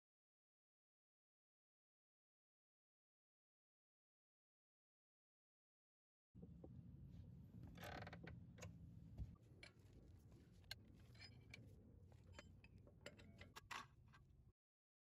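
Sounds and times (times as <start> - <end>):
low steady rumble: 6.4 - 13.6.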